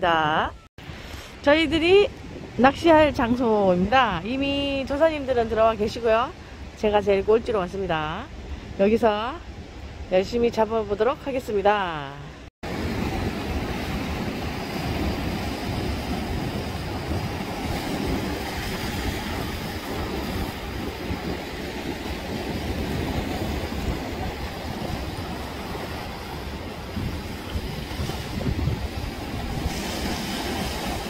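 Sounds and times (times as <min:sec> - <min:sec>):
surf breaking on rocks: 0:12.6 - 0:31.0
wind on microphone: 0:12.6 - 0:31.0.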